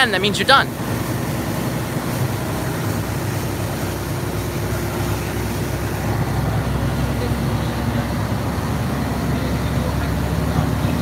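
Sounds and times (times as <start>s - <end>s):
boat engine drone: 0.0s - 11.0s
water rushing along hull: 0.0s - 11.0s.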